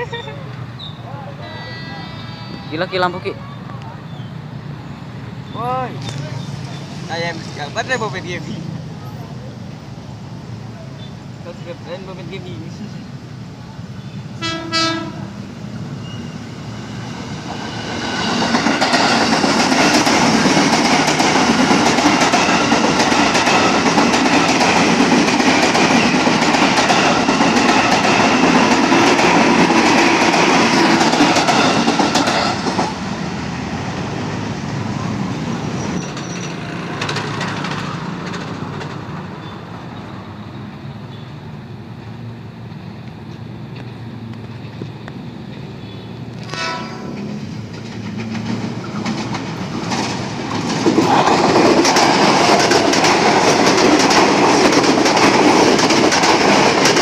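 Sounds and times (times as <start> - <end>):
electric train running past: 0.0 - 57.0
train horn toot: 14.4 - 15.3, 46.4 - 47.3.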